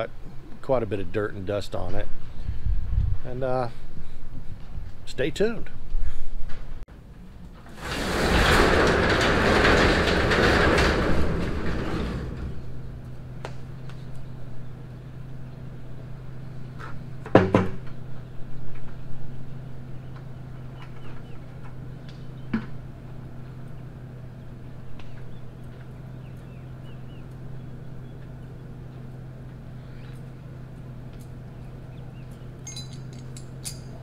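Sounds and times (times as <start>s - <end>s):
loud metallic clank: 7.6s - 13.1s.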